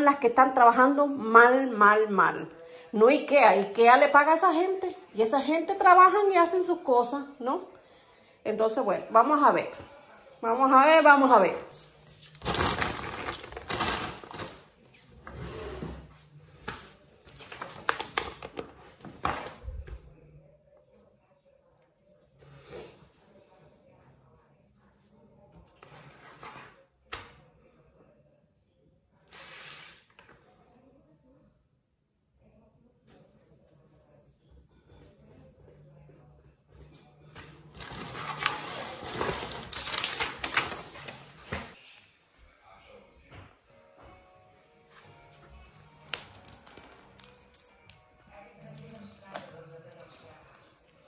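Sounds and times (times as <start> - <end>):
plastic bag crinkling: 12.3 - 14.6.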